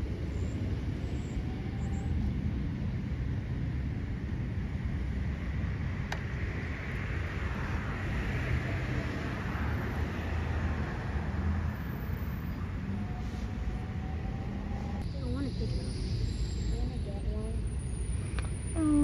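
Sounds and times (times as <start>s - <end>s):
low outdoor rumble with hiss: 0.0s - 13.5s.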